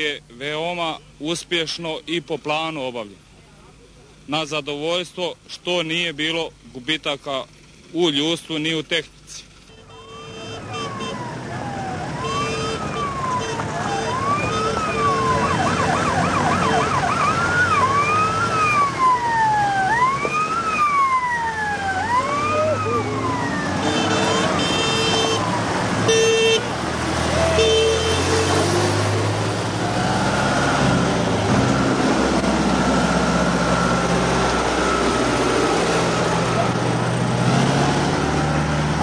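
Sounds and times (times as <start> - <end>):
sirens wailing: 10.4 - 39.0.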